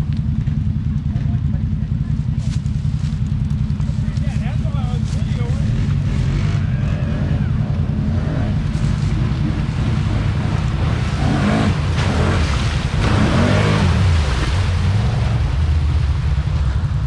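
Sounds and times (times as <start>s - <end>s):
atv engine running: 0.0s - 17.0s
water splashing: 8.5s - 17.0s.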